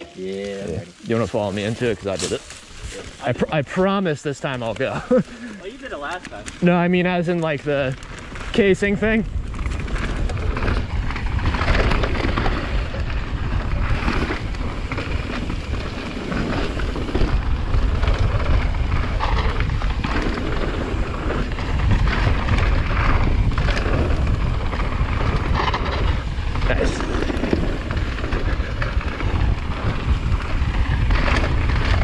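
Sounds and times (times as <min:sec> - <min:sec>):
bike rattling: 0:00.0 - 0:32.0
deep rumble of bike tyres: 0:00.2 - 0:32.0
wind buffeting microphone: 0:07.6 - 0:32.0.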